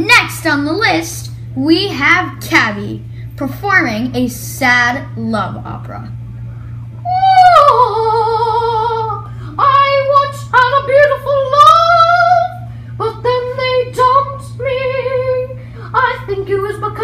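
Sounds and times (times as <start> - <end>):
steady low hum: 0.0 - 17.0
person singing opera-style: 7.1 - 17.0.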